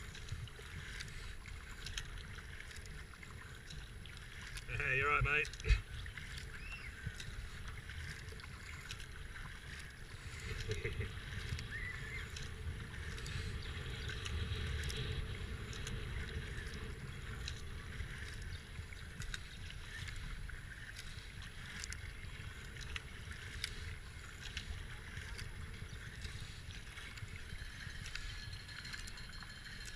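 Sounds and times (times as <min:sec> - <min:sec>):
water dripping: 0:00.0 - 0:15.1, 0:26.2 - 0:29.9
paddle splashing in water: 0:00.0 - 0:29.9
wind rumble on microphone: 0:00.0 - 0:29.9.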